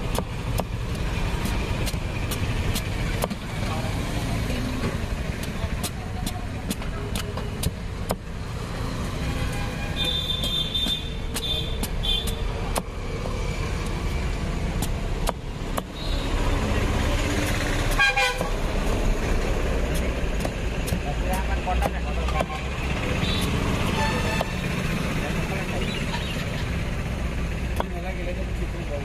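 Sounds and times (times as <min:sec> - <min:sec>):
machete slicing fruit rind: 0:00.0 - 0:04.2, 0:05.0 - 0:08.4, 0:10.0 - 0:13.2, 0:13.8 - 0:24.8, 0:27.7 - 0:28.1
street traffic rumbling: 0:00.0 - 0:29.0
vehicle horns tooting: 0:09.4 - 0:12.5, 0:17.9 - 0:18.6, 0:22.4 - 0:24.6.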